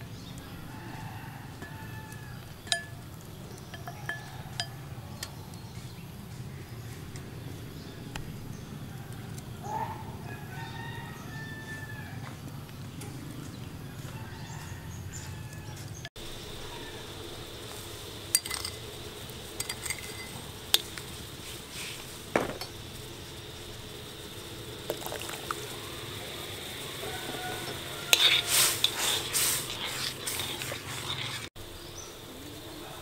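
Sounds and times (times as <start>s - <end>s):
metal spoon scraping a wok: 1.5s - 5.4s, 18.3s - 18.8s, 19.4s - 22.8s, 27.0s - 31.5s.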